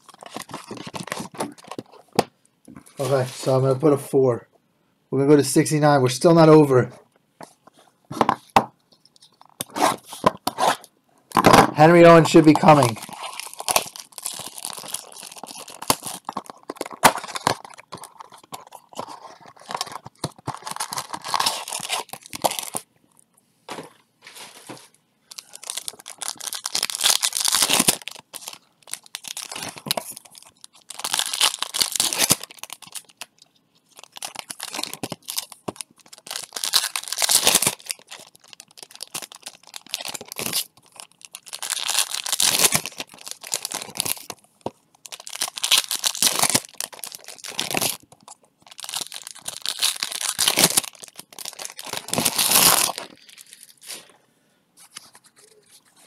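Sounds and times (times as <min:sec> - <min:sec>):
wrappers torn and crinkled: 0:00.0 - 0:01.9, 0:11.8 - 0:22.8, 0:24.6 - 0:54.1.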